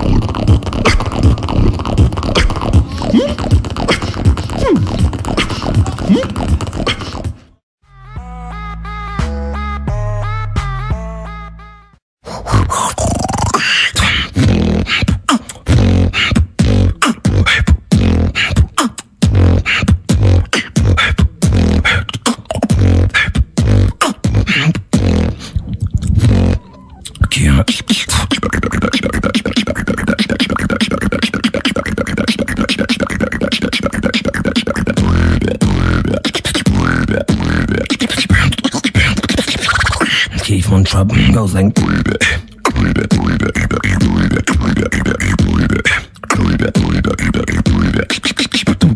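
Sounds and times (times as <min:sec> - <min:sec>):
lip roll bass buzz: 0:00.0 - 0:06.8, 0:15.7 - 0:22.0, 0:22.7 - 0:25.4, 0:34.8 - 0:38.6, 0:41.7 - 0:48.1
beatboxing: 0:00.0 - 0:07.6, 0:08.4 - 0:48.9.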